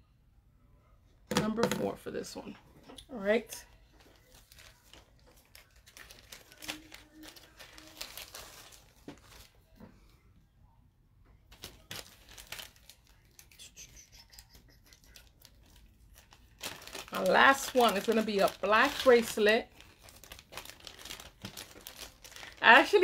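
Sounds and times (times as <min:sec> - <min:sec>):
jewelry rustling and crinkling: 0:02.5 - 0:09.9, 0:11.5 - 0:13.6, 0:14.4 - 0:23.0.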